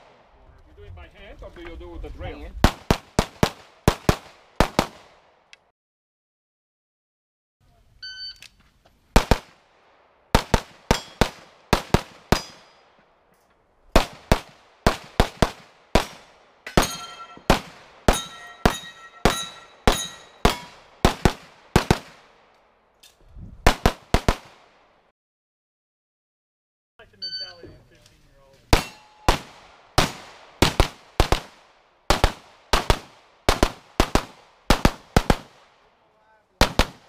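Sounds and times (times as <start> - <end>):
pistol shots fired rapidly: 2.6 - 5.1, 10.3 - 12.6, 14.0 - 22.2, 23.7 - 24.6, 28.8 - 35.6, 36.6 - 37.0
shot timer beep: 8.0 - 8.4, 27.2 - 27.6
steel targets ringing: 12.4 - 12.8, 16.7 - 20.8, 28.8 - 29.3.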